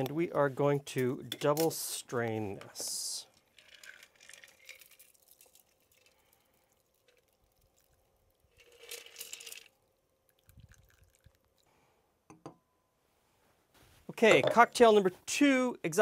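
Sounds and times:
liquid pouring through strainer: 3.3s - 11.7s.

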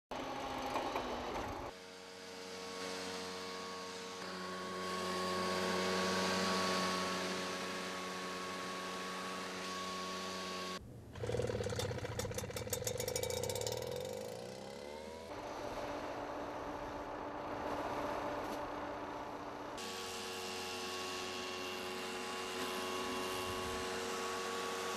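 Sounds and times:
sprayer engine running: 1.7s - 24.9s
engine starting and revving: 9.8s - 18.4s.

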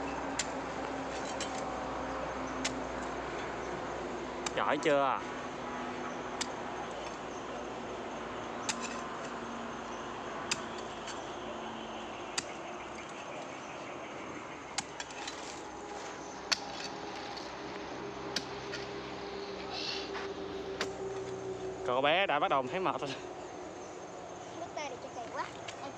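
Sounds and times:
hoe chopping into soil: 16.5s - 17.4s.

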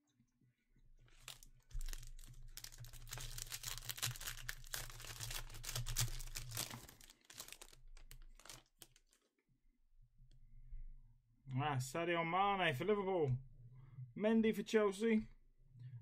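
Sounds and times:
plastic wrapper crinkling: 1.0s - 9.3s
cards rustling: 1.1s - 9.3s.

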